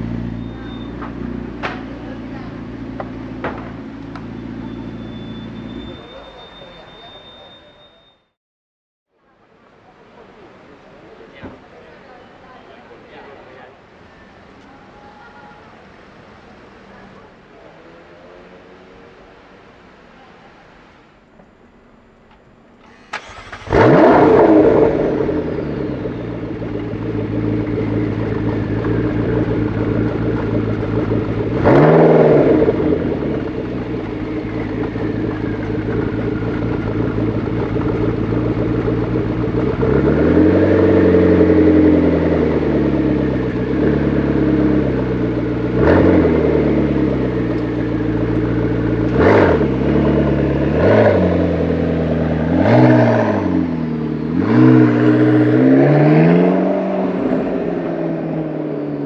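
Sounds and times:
car engine idling and revving: 0:00.0 - 0:06.2, 0:22.3 - 0:59.0
car pulling away: 0:00.0 - 0:06.8, 0:22.2 - 0:59.0.

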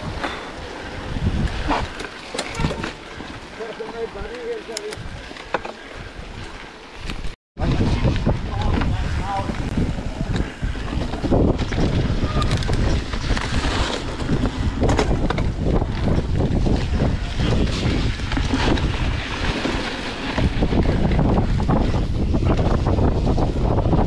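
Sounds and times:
wind rushing over microphone: 0:00.0 - 0:03.6, 0:04.2 - 0:05.4, 0:06.0 - 0:24.0
tyres rolling over dirt and rock: 0:00.0 - 0:24.0
bike knocks and rattles: 0:07.0 - 0:24.0.

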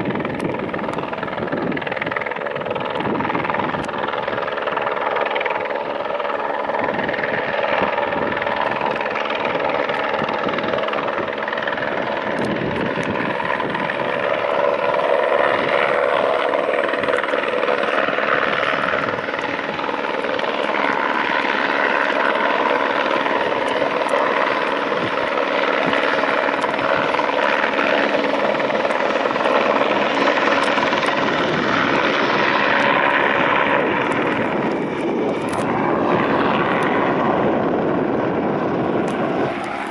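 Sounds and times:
helicopter rotor and turbine: 0:00.0 - 0:39.9
turbine whine: 0:00.0 - 0:39.9.

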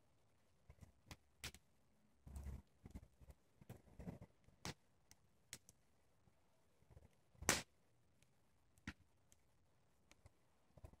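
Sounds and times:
wood fire crackling: 0:06.8 - 0:11.0
sharp fire pops: 0:07.4 - 0:07.7.

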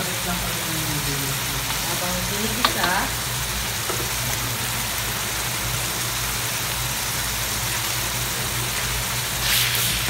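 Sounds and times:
food sizzling in hot oil: 0:00.0 - 0:10.0.

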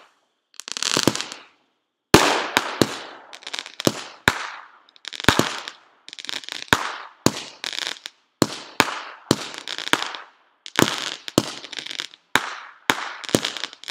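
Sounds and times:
firecrackers banging: 0:02.2 - 0:05.8, 0:06.6 - 0:13.9.

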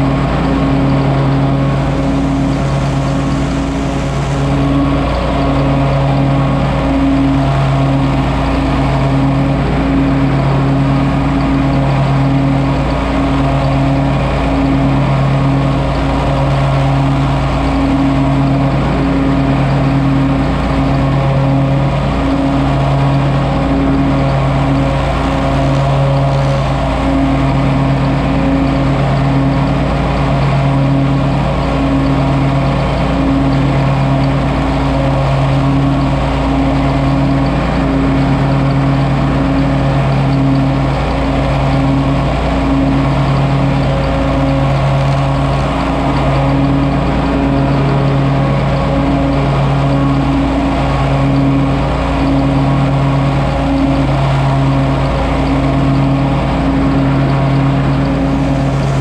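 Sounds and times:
lawn mower running: 0:00.0 - 0:59.0.

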